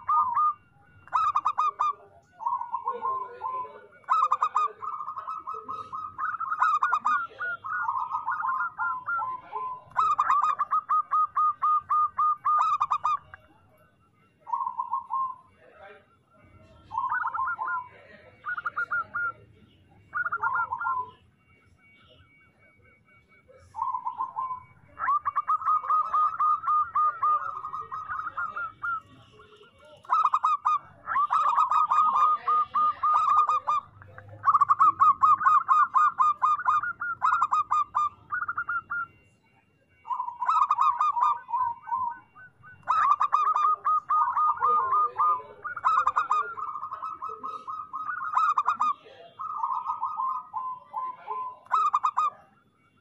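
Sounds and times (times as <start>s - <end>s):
dove cooing song: 0.0s - 53.0s.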